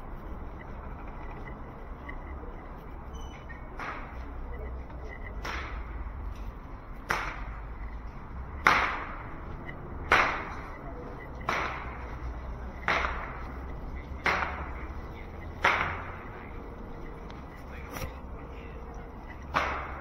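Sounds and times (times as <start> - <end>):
steady low hum: 0.0 - 20.0
sharp crack with ringing echo: 3.7 - 4.2, 5.3 - 6.1, 7.0 - 7.7, 8.6 - 16.4, 19.4 - 20.0.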